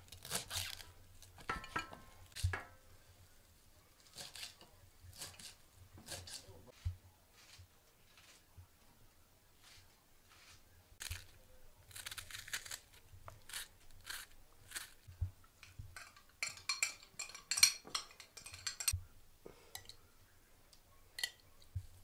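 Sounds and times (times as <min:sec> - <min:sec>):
metal spoon scraping in glass jar: 0:16.0 - 0:19.0.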